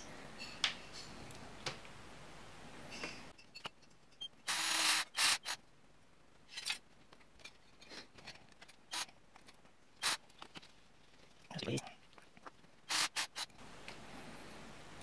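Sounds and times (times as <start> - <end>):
cordless drill boring plastic: 4.5 - 5.6, 12.9 - 13.5.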